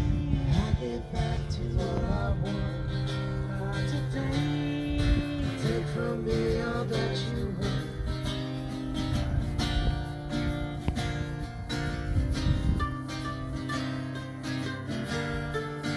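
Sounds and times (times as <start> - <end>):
people singing: 0.0 - 8.5
mandolin playing: 0.0 - 15.9
strummed acoustic guitar: 0.0 - 15.9.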